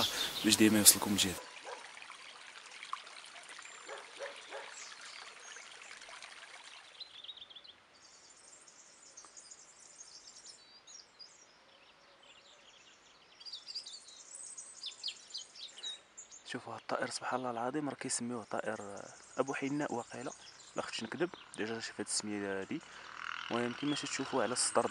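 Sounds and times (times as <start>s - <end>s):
robin singing: 0.0s - 1.8s, 7.0s - 24.9s
water trickling: 0.0s - 8.8s.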